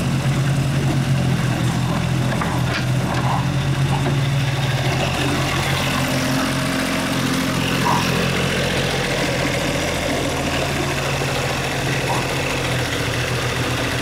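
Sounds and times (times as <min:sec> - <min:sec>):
excavator engine running: 0:00.0 - 0:14.0.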